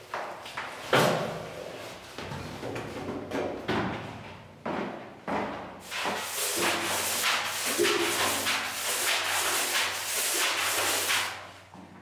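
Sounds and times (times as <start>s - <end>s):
brush scrubbing metal tank: 5.8s - 11.5s.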